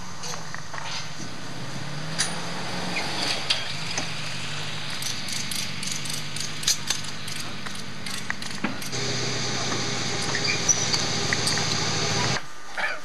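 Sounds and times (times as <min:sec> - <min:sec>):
low engine hum: 0:08.9 - 0:12.4.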